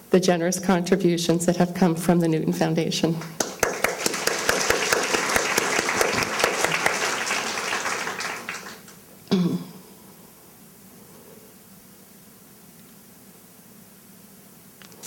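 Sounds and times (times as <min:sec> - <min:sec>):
audience applauding: 0:03.4 - 0:09.0.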